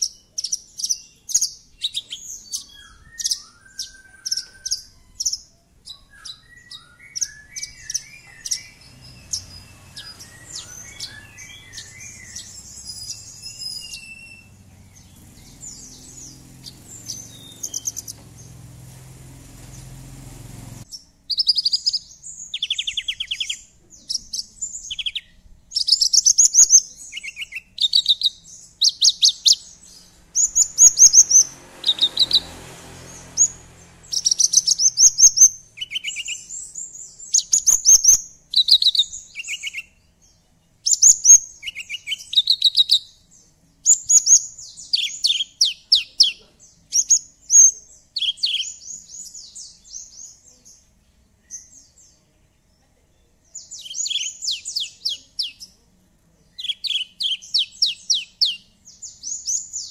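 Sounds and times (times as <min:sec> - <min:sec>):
bird chirping and trilling: 0:00.0 - 0:50.8, 0:53.5 - 0:55.8, 0:56.6 - 0:59.9
low hum: 0:08.7 - 0:20.9.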